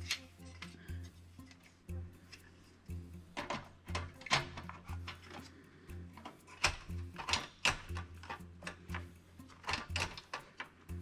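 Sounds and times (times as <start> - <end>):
background music with bass line: 0.0 - 11.0
plastic and metal clicks: 6.2 - 10.8.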